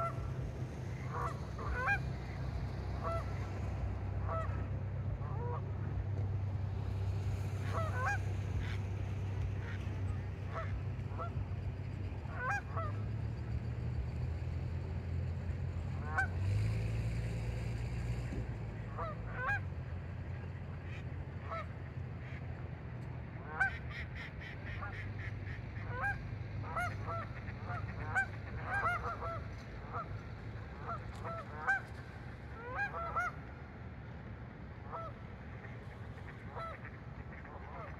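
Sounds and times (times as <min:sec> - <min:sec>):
geese honking: 0:00.0 - 0:13.6, 0:15.9 - 0:16.6, 0:18.9 - 0:22.4, 0:23.4 - 0:33.7, 0:34.8 - 0:37.9
steady low hum: 0:00.0 - 0:16.4.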